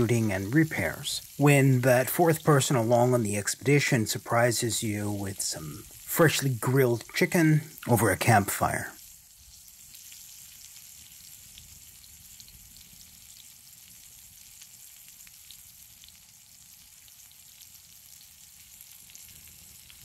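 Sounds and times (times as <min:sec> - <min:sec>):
chicken sizzling on a grill: 0:00.0 - 0:20.0
small pops and crackles: 0:09.0 - 0:20.0.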